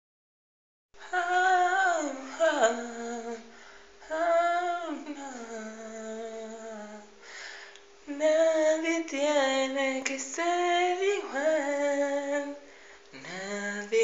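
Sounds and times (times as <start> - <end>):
man singing without words: 1.0 - 7.2, 8.0 - 14.0.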